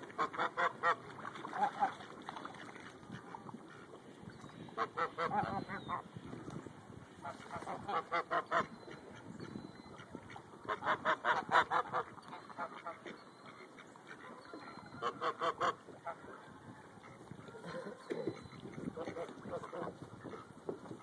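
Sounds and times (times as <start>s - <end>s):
geese honking: 4.7s - 6.1s, 7.2s - 9.2s, 9.9s - 20.5s.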